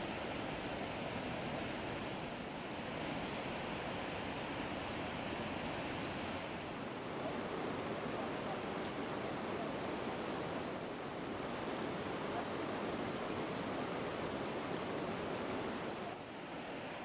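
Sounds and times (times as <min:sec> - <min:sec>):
floodwater rushing over rocks: 0:06.4 - 0:17.0.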